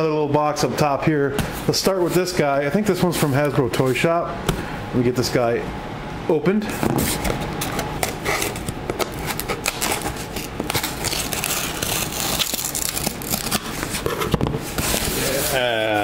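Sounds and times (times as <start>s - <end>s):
knife slitting packing tape: 8.0s - 14.0s.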